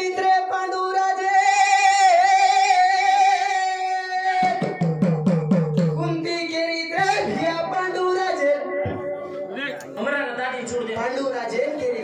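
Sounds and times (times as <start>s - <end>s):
devotional singing over loudspeakers: 0.0s - 4.8s, 6.0s - 12.0s.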